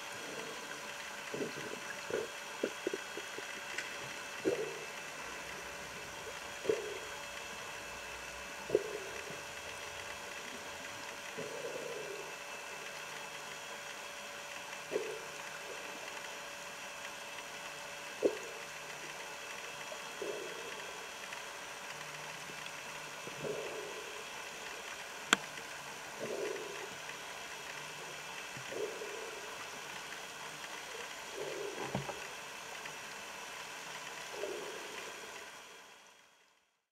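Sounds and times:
whale song moaning underwater: 0.0s - 33.5s, 34.1s - 36.0s
steady underwater hum: 0.0s - 36.9s.

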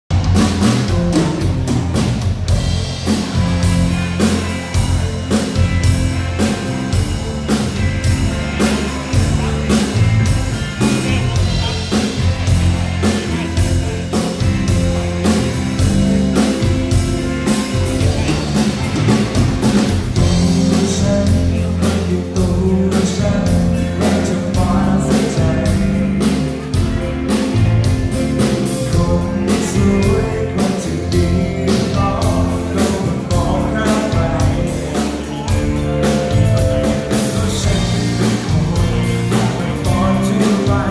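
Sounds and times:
bass guitar: 0.0s - 40.9s
drum kit beat: 0.1s - 40.9s
electric guitars: 0.1s - 40.9s
person singing through pa: 20.2s - 26.4s, 28.8s - 35.6s, 36.9s - 40.9s.

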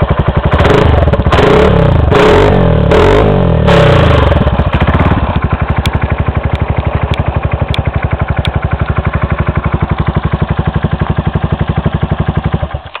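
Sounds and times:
scooter engine idling: 0.0s - 13.0s.

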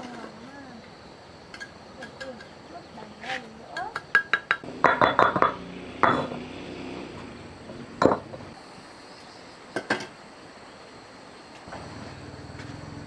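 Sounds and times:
hard objects clinking and knocking: 3.8s - 6.4s, 8.0s - 8.4s.

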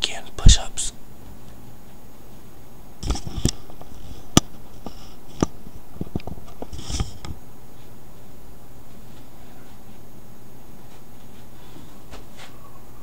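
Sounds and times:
handling noise on microphone: 3.0s - 7.9s.

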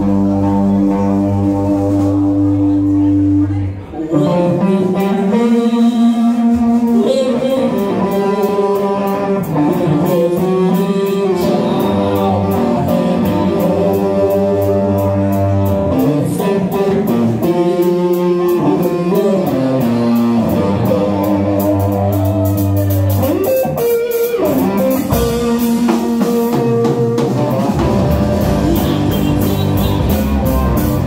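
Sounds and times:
bass guitar line: 0.0s - 31.0s
electric guitar riff: 0.0s - 31.0s
drum kit cymbals: 21.3s - 31.0s.

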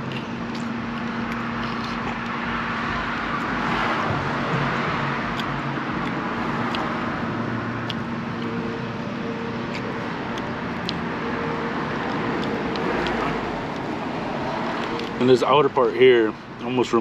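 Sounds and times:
vehicle idling hum: 0.0s - 17.0s.

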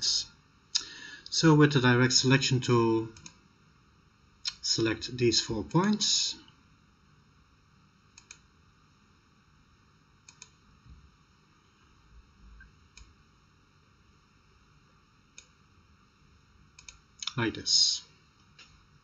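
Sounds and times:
computer mouse clicks: 3.2s - 3.4s, 8.1s - 8.4s, 10.2s - 10.6s, 16.8s - 17.4s.

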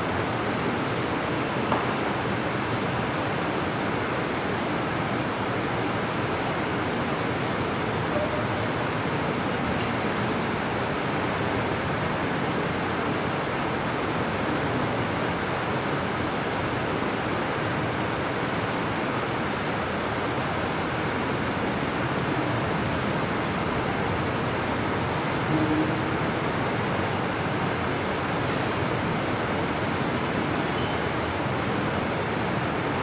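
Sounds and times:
steady background hiss: 0.0s - 33.0s
faint high whine: 25.4s - 27.4s.

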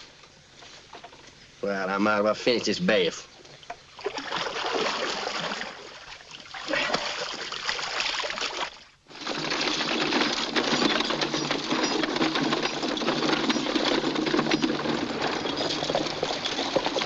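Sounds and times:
water sloshing and splashing: 3.5s - 17.0s
horse hooves on dirt trail: 9.1s - 17.0s.

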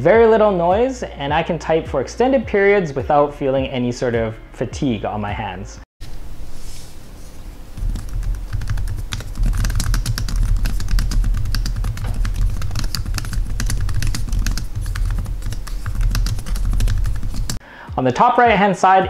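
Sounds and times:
laptop keyboard typing: 7.8s - 17.6s.

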